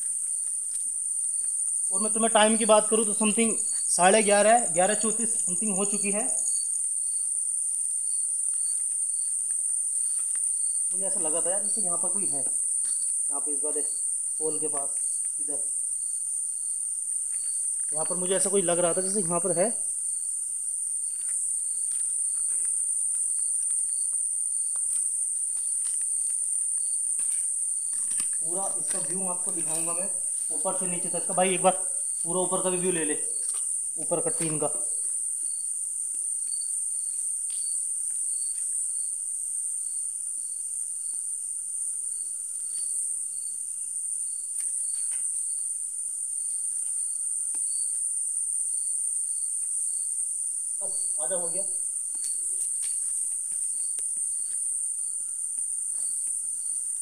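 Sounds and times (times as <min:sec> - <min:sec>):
crickets chirring: 0:00.0 - 0:57.0.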